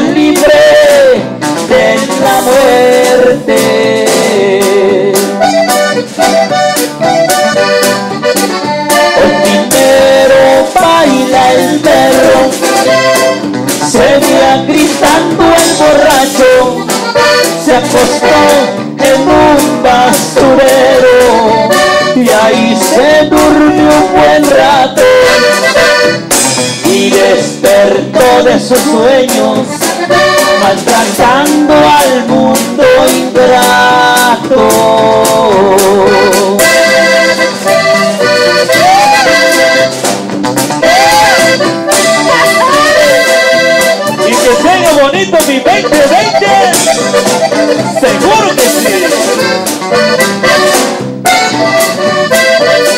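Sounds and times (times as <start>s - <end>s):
accordion: 0.0s - 52.9s
bass: 0.0s - 52.9s
drums beat: 0.0s - 52.9s
keyboard: 0.0s - 52.9s.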